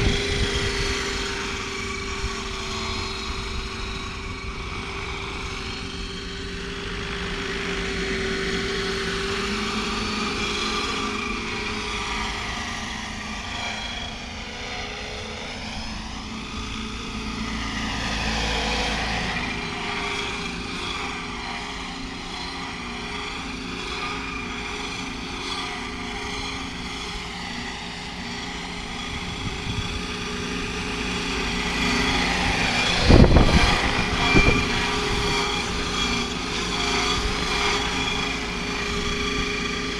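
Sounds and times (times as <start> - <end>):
model helicopter rotor and motor: 0.0 - 39.9
simulated turbine whine: 0.0 - 39.9
rotor wash rushing on microphone: 26.0 - 39.9.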